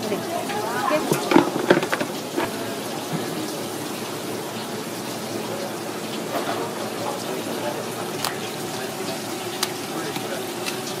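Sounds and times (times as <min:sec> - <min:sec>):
water spraying onto cutting board: 0:00.1 - 0:05.4, 0:08.0 - 0:11.0
knocks and clatters: 0:01.0 - 0:03.3.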